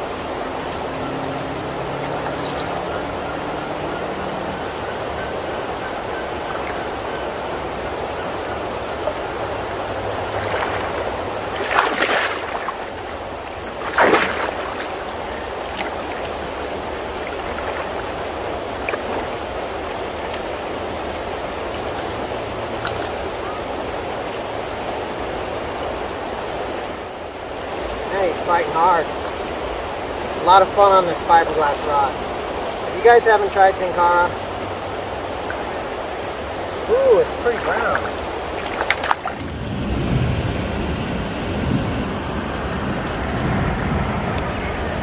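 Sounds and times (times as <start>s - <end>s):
creek water running: 0.0s - 45.0s
splashes in water: 1.7s - 3.5s, 8.9s - 20.5s, 36.9s - 39.6s.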